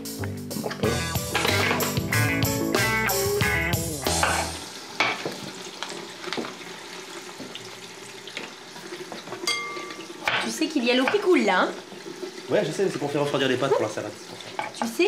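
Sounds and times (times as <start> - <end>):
music sting: 0.0 - 4.6.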